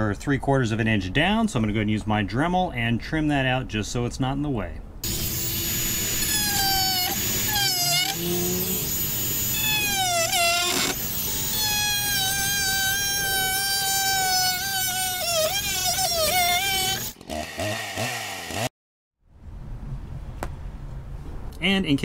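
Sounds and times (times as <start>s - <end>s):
rotary tool whining: 5.0s - 18.7s.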